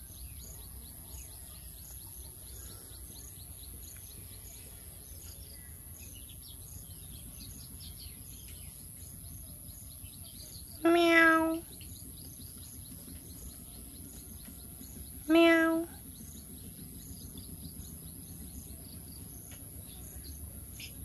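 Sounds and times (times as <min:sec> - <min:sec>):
kitten meowing: 0:10.8 - 0:11.6, 0:15.3 - 0:15.9.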